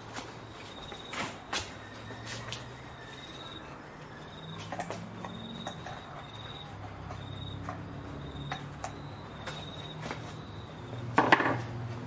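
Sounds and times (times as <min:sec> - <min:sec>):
insect chirping in high trills: 0:01.8 - 0:04.6, 0:05.2 - 0:11.0.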